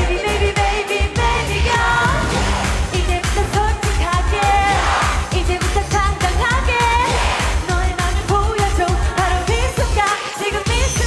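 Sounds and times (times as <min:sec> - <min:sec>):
pop dance song with heavy beat: 0:00.0 - 0:11.0
woman singing: 0:02.9 - 0:11.0.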